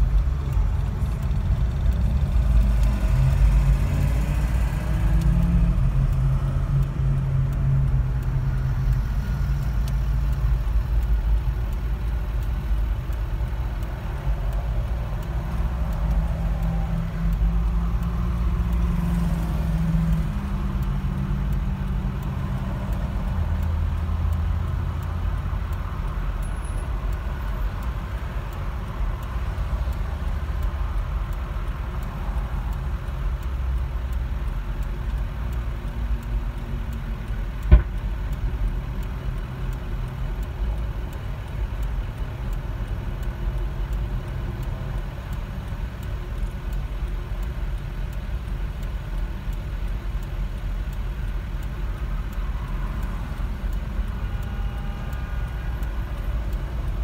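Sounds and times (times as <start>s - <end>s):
car engine hum: 0.0s - 57.0s
road noise: 0.0s - 57.0s.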